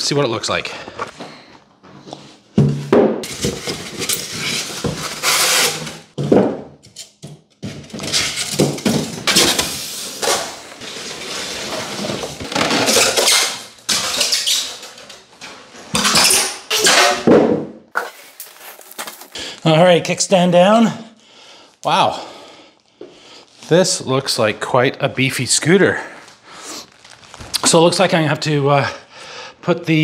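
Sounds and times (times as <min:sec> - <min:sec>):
cardboard and foam scraping: 0:03.2 - 0:06.2, 0:09.6 - 0:13.4.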